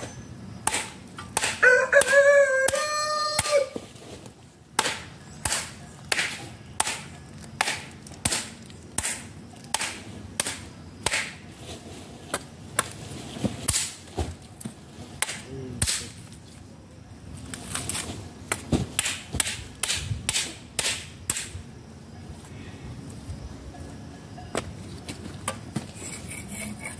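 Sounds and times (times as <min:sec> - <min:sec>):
hand tool chopping: 0:00.6 - 0:03.8, 0:04.8 - 0:11.4, 0:12.3 - 0:16.2, 0:18.5 - 0:21.6.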